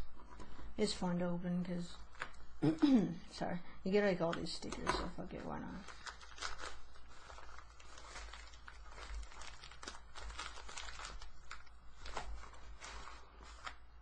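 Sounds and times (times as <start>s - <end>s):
plastic bag crinkling: 5.3s - 14.0s.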